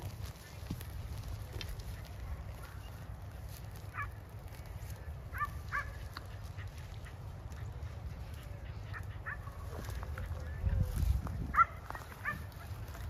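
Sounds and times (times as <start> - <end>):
distant dog barking: 3.9 - 4.2, 5.3 - 10.6, 11.5 - 13.0.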